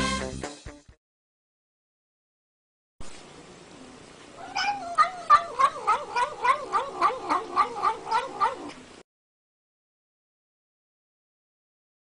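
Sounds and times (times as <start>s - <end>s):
cat yowling: 4.4s - 9.0s.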